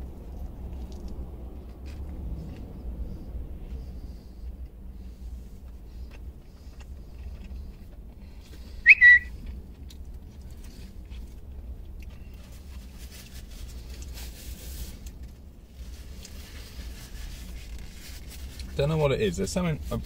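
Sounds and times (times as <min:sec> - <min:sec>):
low rumble inside car: 0:00.0 - 0:20.0
whistled chirp sound effect: 0:08.9 - 0:09.3.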